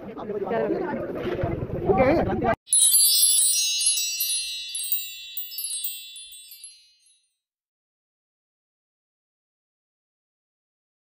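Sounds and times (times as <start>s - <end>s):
bright tinkling chime: 2.7s - 7.3s.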